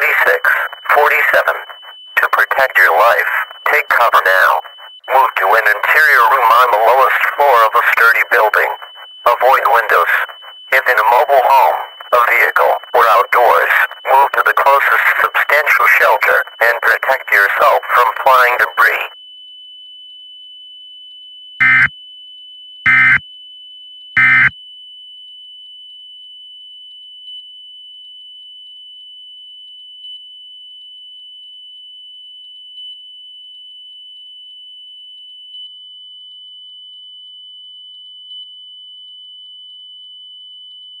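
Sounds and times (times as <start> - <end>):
thin steady high tone: 0.0 - 21.9
digital data bursts screeching: 21.6 - 21.9, 22.9 - 23.2.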